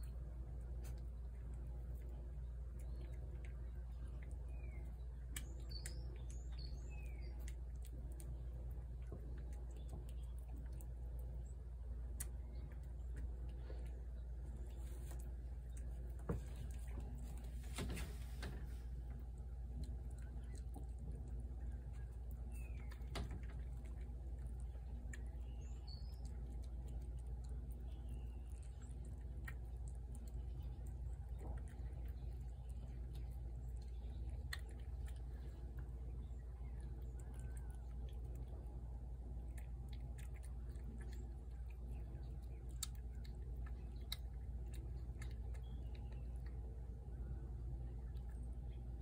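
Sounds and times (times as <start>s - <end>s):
cat chewing: 0.0s - 49.0s
low background hum: 0.0s - 49.0s
bird chirps: 4.1s - 7.6s.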